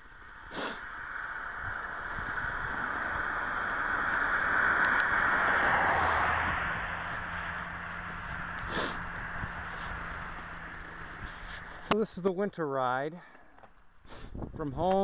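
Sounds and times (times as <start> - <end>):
car passing on highway: 0.0 - 12.5.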